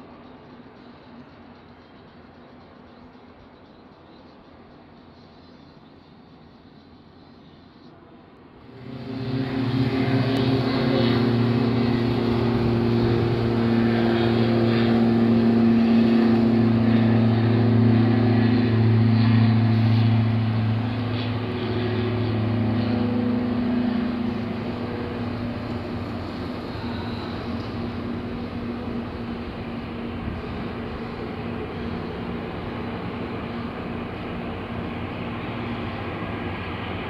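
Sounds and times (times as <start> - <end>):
jet engines reverse thrust: 0.0 - 37.0.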